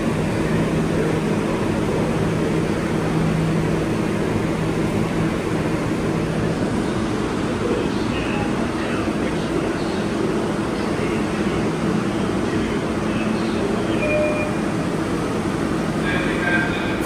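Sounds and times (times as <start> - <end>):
subway car rumble: 0.0 - 17.0.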